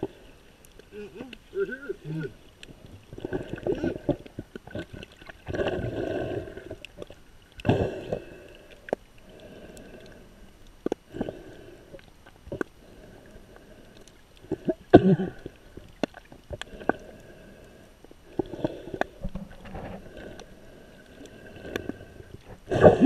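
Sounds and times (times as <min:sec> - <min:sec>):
muffled underwater water swishing: 0:00.0 - 0:23.0.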